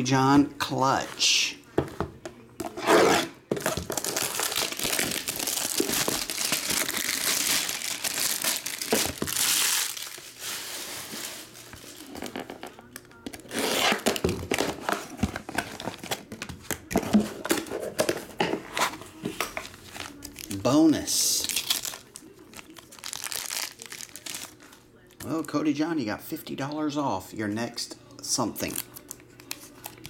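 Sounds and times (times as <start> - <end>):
plastic wrapping crinkling and tearing: 3.6 - 16.4, 18.8 - 24.8, 28.6 - 30.0.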